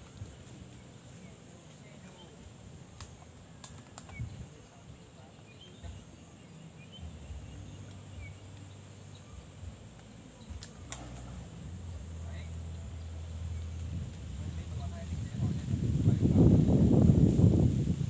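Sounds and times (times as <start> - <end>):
faint clicks: 2.9 - 4.2, 9.9 - 11.3
low rumble: 7.0 - 18.0.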